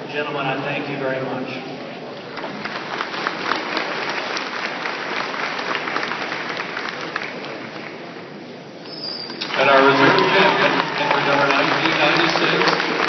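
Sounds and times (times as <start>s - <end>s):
crowd applauding: 2.3s - 8.2s, 9.2s - 13.0s.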